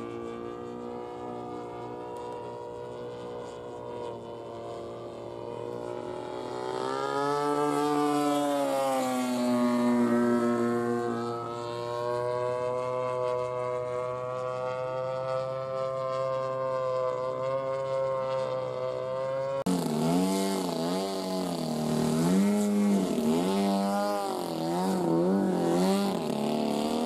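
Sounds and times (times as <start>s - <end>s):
model airplane engine: 0.0s - 27.0s.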